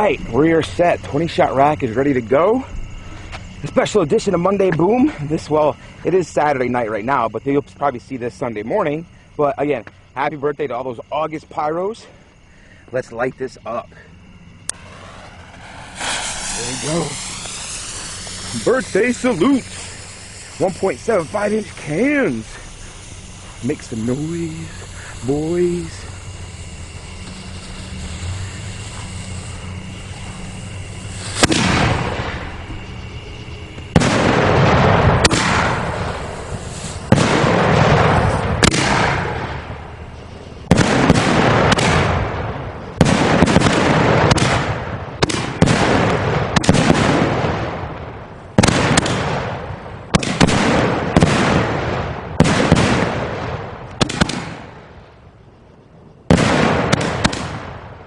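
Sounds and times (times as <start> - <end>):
firework salutes banging: 14.6 - 40.1.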